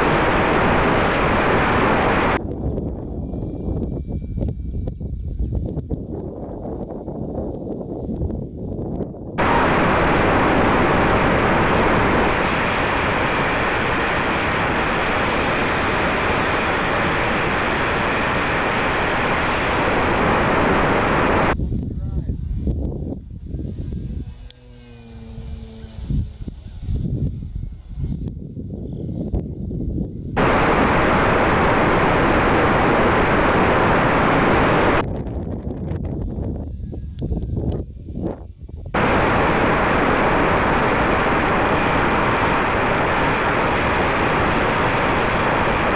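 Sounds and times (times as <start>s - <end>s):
airflow and propeller noise: 0.0s - 45.9s
low wind rumble: 0.0s - 45.9s
loud rushing hiss: 9.4s - 21.6s, 30.4s - 35.0s, 39.0s - 45.9s
faint motor hum: 22.4s - 34.8s.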